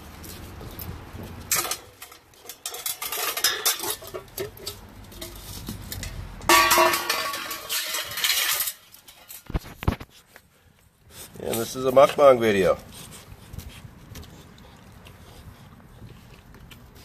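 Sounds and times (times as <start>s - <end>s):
metal tongs clinking and scraping: 1.5s - 9.5s.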